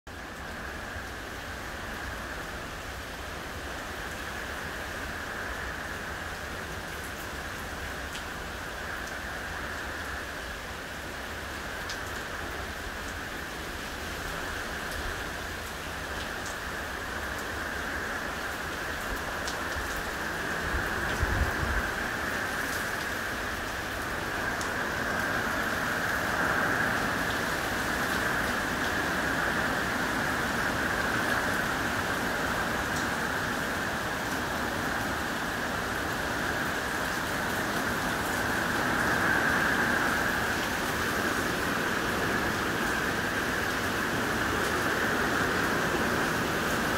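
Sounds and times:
rain on grass and trees: 0:00.1 - 0:46.9.

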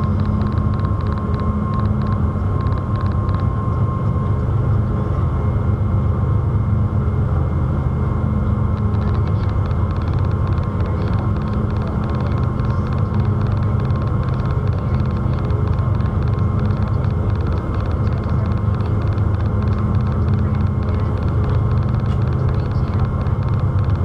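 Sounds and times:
faint rapid ticking: 0:00.0 - 0:03.6, 0:08.7 - 0:24.0
constant hum: 0:00.0 - 0:24.0
ferry engine drone: 0:00.0 - 0:24.0.

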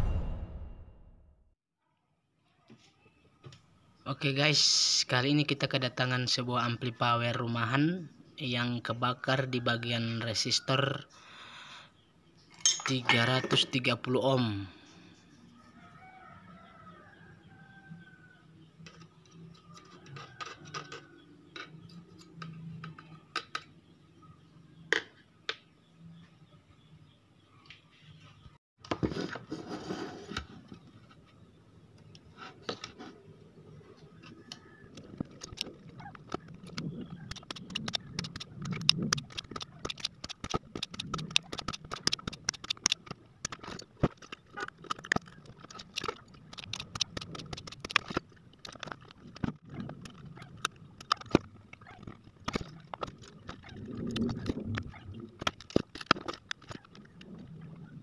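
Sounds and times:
tools clicking and scraping on circuit board: 0:34.5 - 0:54.6, 0:55.4 - 0:57.1.

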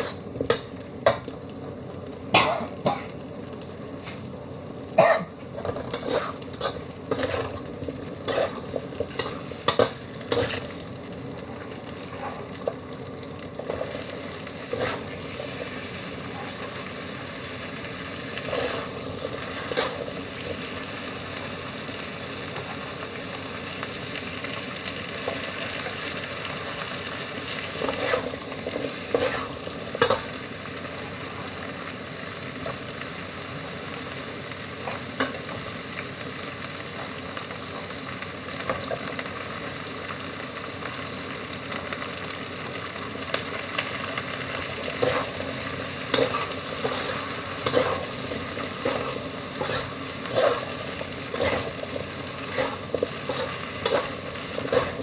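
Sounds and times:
food sizzling: 0:00.0 - 0:55.0
metal spatula scraping a wok: 0:05.6 - 0:07.6, 0:08.2 - 0:10.7, 0:14.7 - 0:15.2, 0:18.4 - 0:20.1, 0:27.8 - 0:28.4, 0:29.1 - 0:30.2, 0:46.2 - 0:51.8, 0:52.4 - 0:55.0.

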